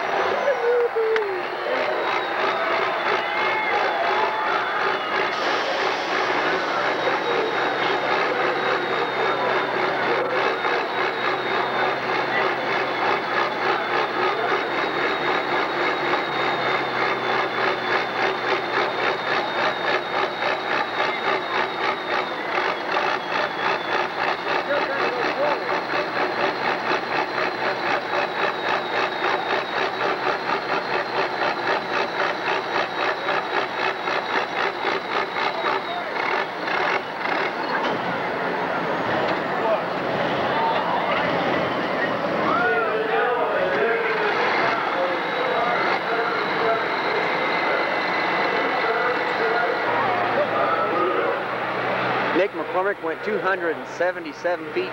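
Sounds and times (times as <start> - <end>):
diesel tractor engine running: 0.0 - 54.9
high whine: 0.0 - 54.9.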